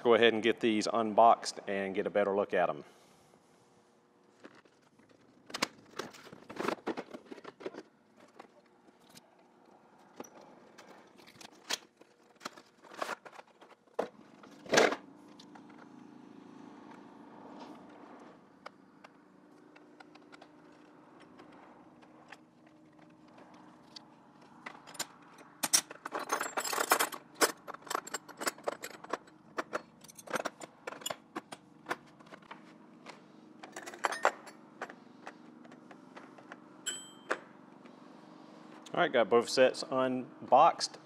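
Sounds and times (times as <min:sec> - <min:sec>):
metal wrenches clinking: 0:24.7 - 0:31.5, 0:33.6 - 0:34.6, 0:36.9 - 0:37.4
metallic ring: 0:36.8 - 0:37.3.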